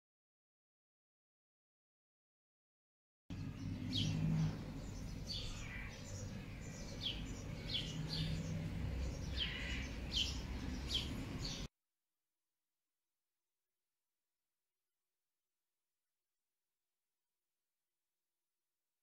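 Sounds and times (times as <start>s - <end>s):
small birds chirping: 3.3s - 11.7s.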